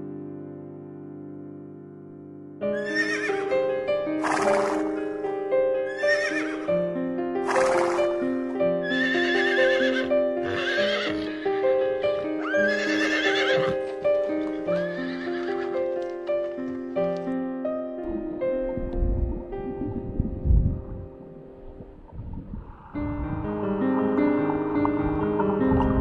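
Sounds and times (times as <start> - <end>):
background music: 0.0 - 26.0
horse neighing: 2.8 - 3.5, 4.2 - 5.0, 5.9 - 6.7, 7.4 - 8.1, 8.8 - 13.8, 14.5 - 15.7.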